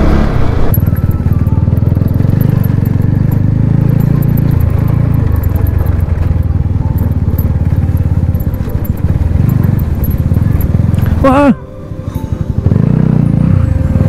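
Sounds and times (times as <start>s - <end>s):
motorcycle engine running: 0.0s - 14.0s
faint ticks and rattles: 1.8s - 11.3s.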